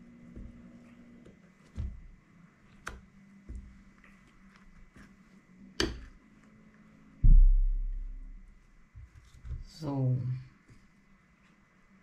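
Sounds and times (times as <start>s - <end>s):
loud dull thump: 7.2s - 8.5s.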